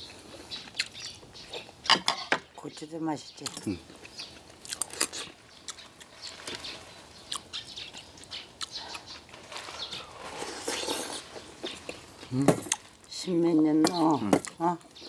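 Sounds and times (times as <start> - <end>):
slurping or chewing: 4.0 - 12.9.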